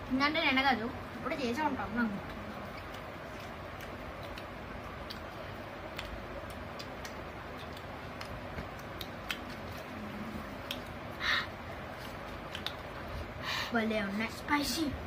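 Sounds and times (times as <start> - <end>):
steady background hiss: 0.0 - 15.0
eating clicks and ticks: 1.9 - 9.9, 10.6 - 11.0, 12.0 - 13.2.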